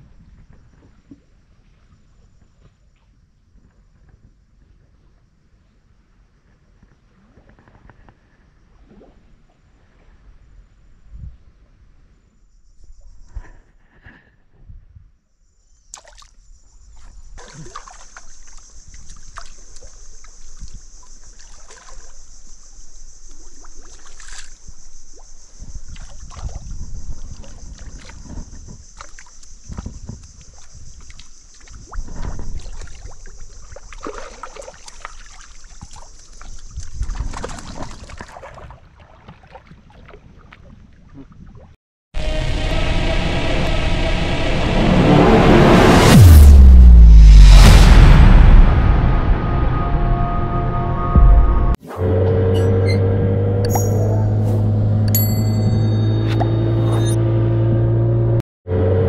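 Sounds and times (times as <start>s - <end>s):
high-pitched insect chorus: 12.5s - 13.4s, 15.4s - 37.9s
water sloshing and knocking: 16.9s - 22.3s, 25.8s - 40.9s
low bumps: 42.4s - 58.4s.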